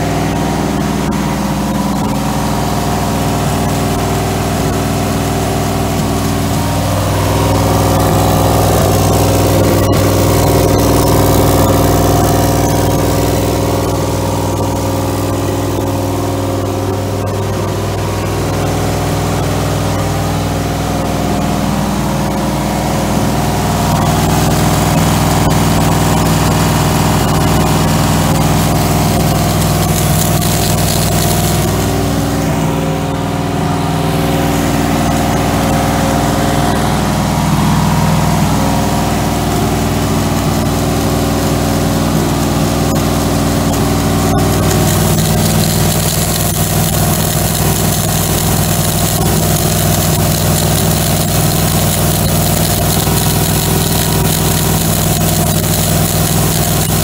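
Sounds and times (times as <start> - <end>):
car engine fast idle: 23.4 - 33.0, 40.9 - 57.0.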